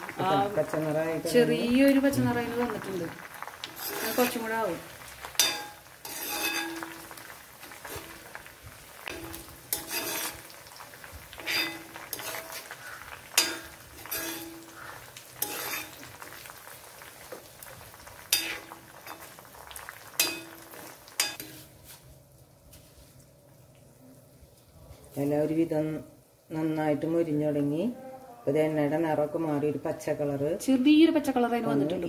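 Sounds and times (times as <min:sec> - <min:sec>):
oil sizzling: 0:00.0 - 0:27.9
spoon scraping metal pan: 0:03.6 - 0:04.6, 0:05.3 - 0:08.4, 0:09.0 - 0:10.6, 0:11.3 - 0:16.2, 0:18.3 - 0:19.4, 0:20.2 - 0:21.7.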